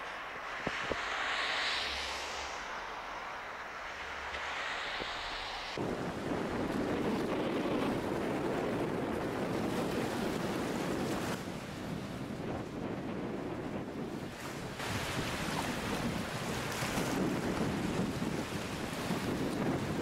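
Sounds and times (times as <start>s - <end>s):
outdoor ambience hiss: 0.0s - 6.2s
wind buffeting microphone: 0.0s - 20.0s.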